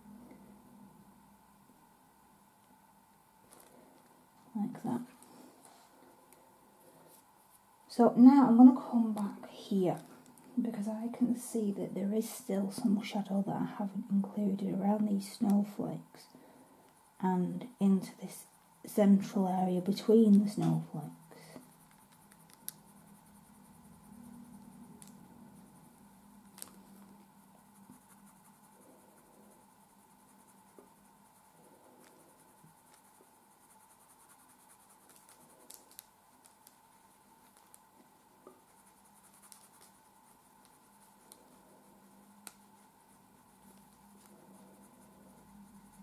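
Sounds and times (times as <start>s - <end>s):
coloured pencil scratching on paper: 18.0s - 46.0s.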